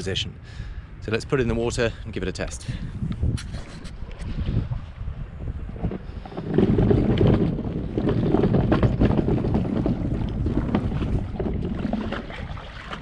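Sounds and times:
wind buffeting microphone: 0.0 - 13.0
stones crunching under boat hull: 5.8 - 13.0.

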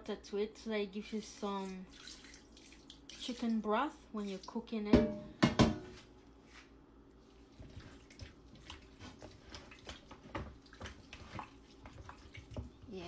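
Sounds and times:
wet squelching and sloshing: 1.5 - 4.7, 7.1 - 13.0.

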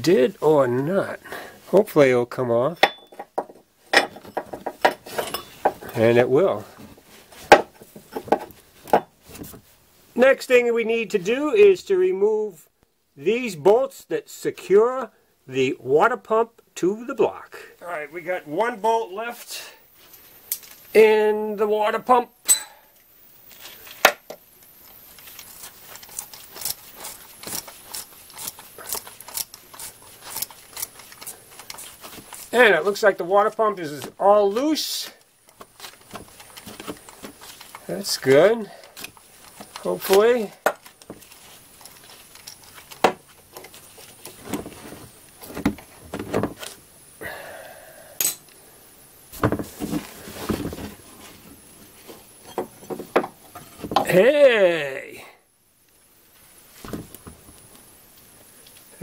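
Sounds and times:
metallic clinks and knocks of tools: 2.7 - 6.0, 22.4 - 22.8, 41.8 - 43.0, 48.2 - 48.6
sharp metal clink: 2.8 - 3.2, 22.4 - 22.8, 48.2 - 48.5.

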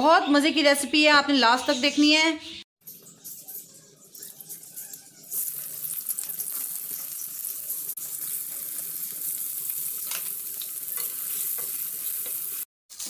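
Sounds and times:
onions sizzling in hot oil: 3.2 - 13.0
oil crackling: 4.1 - 12.7.

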